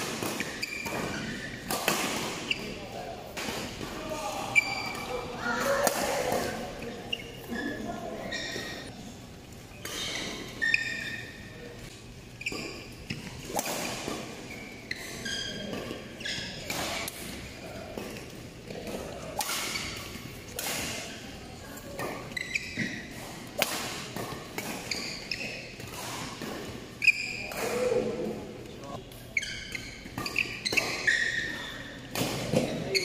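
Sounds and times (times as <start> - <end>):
racket hitting shuttlecock: 0.0 - 2.7
shoes squeaking on court: 0.2 - 28.0, 28.6 - 33.0.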